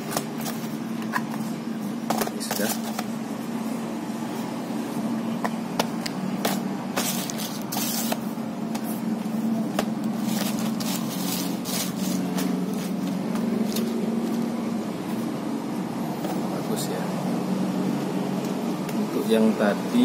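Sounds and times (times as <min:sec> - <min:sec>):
cardboard boxes tapping and scraping: 0:00.0 - 0:03.1, 0:05.4 - 0:14.0
low steady hum: 0:00.0 - 0:20.0.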